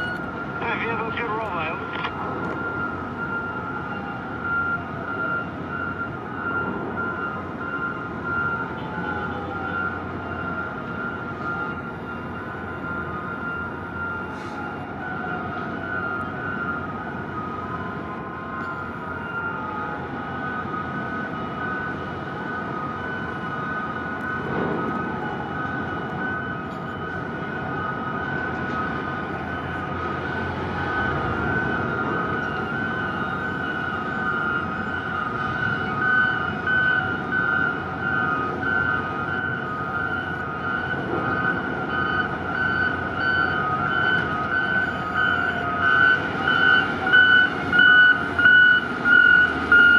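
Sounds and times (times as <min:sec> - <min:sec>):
warning tones and beeps: 0:41.4 - 0:49.9.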